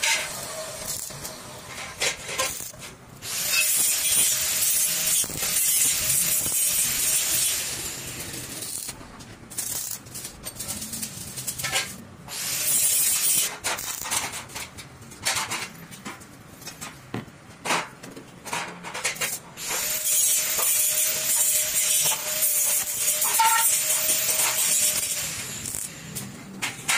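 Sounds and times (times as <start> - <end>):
welding arc crackling hiss: 0.0 - 1.7, 2.4 - 10.2, 12.3 - 14.4, 19.7 - 26.4.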